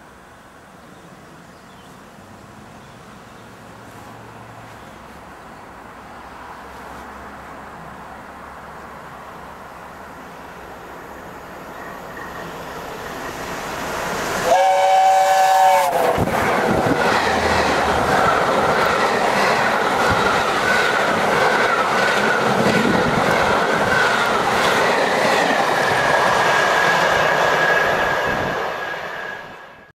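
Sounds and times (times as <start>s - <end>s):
steam locomotive rumble: 9.9s - 29.9s
steam train whistle: 14.4s - 16.3s.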